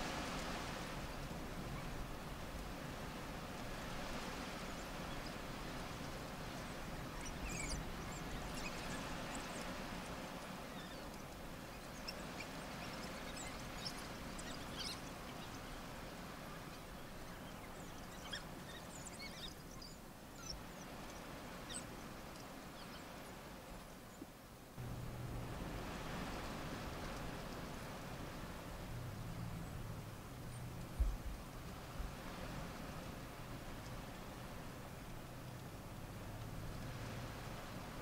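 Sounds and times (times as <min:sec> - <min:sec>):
wild dogs twittering chirps: 0:07.1 - 0:09.7, 0:10.7 - 0:15.8, 0:16.5 - 0:21.9.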